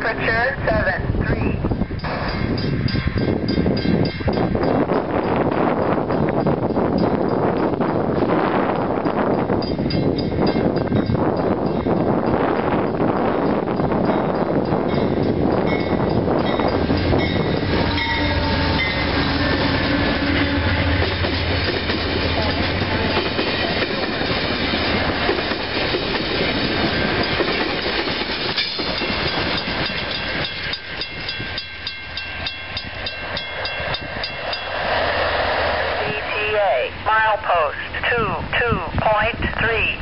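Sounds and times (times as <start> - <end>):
train coaches rumbling and clattering: 0.0 - 37.1
diesel locomotive engine hum: 0.0 - 40.0
regular ringing strikes: 1.8 - 24.4, 26.4 - 34.8.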